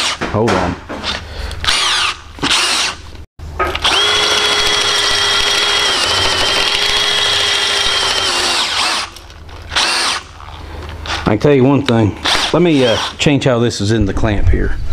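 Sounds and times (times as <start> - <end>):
cordless drill boring into rubber: 1.7 - 3.0, 3.8 - 10.2, 12.2 - 13.2.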